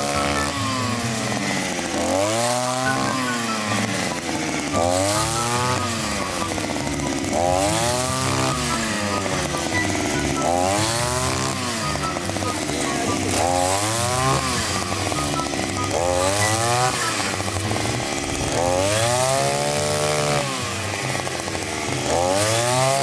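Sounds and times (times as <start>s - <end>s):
brush cutter engine revving: 0.0s - 23.0s.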